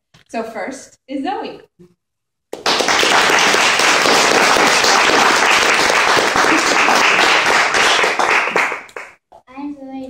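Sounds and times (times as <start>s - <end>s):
audience applauding: 2.6s - 9.2s.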